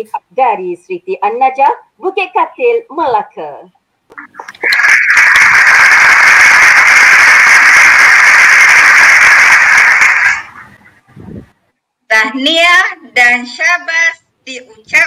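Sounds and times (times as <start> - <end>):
crowd applause: 4.4 - 10.8.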